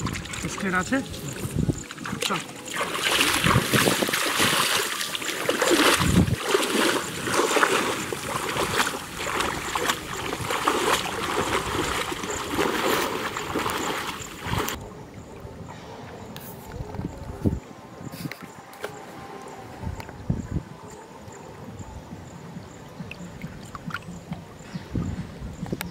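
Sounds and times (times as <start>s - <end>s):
splashing through flood water: 0.0s - 14.9s.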